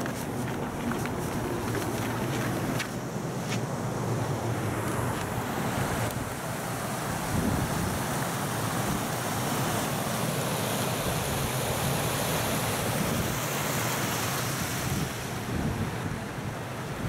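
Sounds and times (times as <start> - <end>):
wind buffeting microphone: 0.0 - 9.8, 14.6 - 17.0
water rushing over a weir: 0.0 - 17.0.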